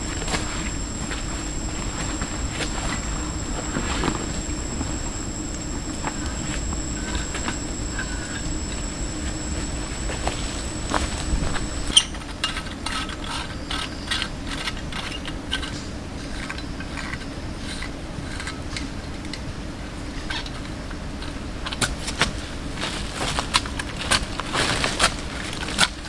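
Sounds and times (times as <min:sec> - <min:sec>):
high insect drone: 0:00.0 - 0:18.4.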